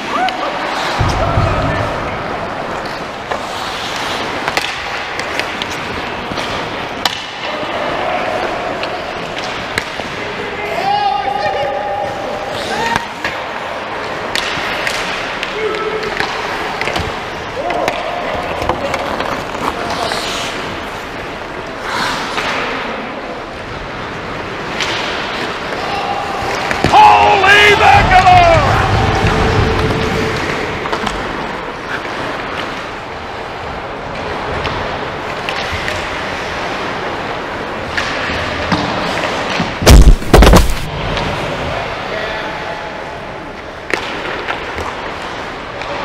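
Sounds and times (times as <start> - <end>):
sticks and puck clacking: 0.0 - 1.2, 2.5 - 10.4, 12.5 - 41.4, 43.6 - 46.0
skates scraping ice: 0.0 - 41.8
skates scraping hiss: 2.7 - 6.9, 18.8 - 23.0.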